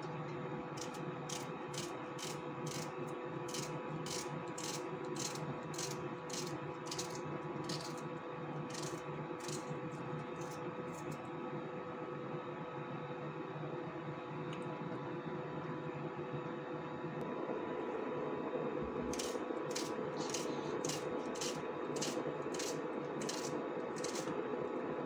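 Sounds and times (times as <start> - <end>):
steady hum: 0.0 - 12.5, 13.9 - 25.0
knife slicing onion: 0.8 - 8.1, 8.7 - 9.7, 19.1 - 24.4.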